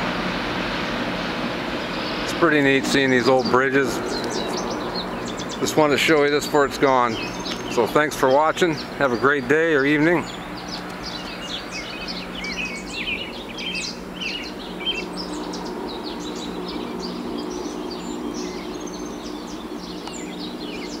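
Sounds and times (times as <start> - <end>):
birds chirping: 0.0 - 21.0
low steady hum: 0.0 - 21.0
outdoor background noise: 0.0 - 21.0.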